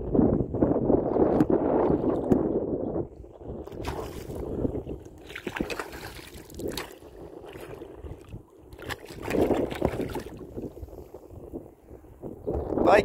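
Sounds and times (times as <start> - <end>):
fish splashing in water: 5.1 - 8.0.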